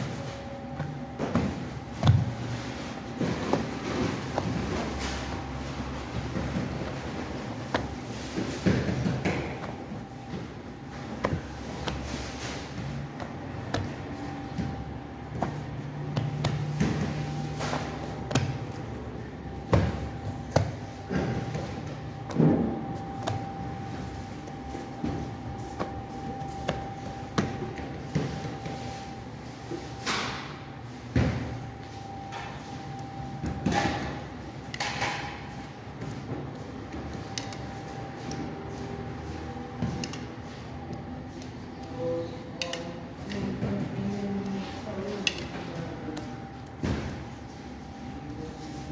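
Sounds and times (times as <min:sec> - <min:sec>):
dough on metal baking trays: 0:00.0 - 0:48.9
steady machine hum: 0:00.0 - 0:48.9.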